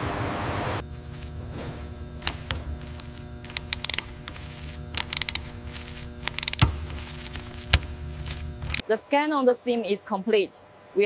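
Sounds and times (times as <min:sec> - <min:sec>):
ratchet wrench clicking: 0:03.5 - 0:05.5, 0:06.2 - 0:06.7.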